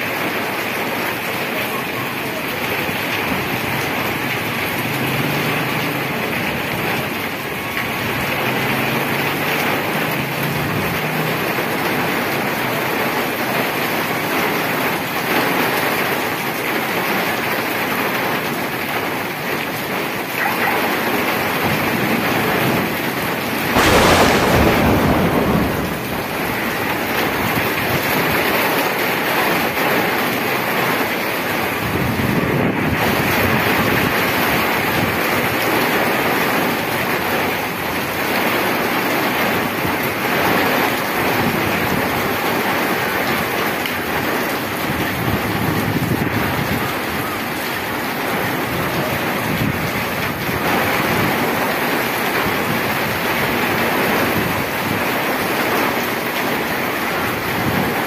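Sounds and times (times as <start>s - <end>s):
heavy rain on street: 0.0s - 58.0s.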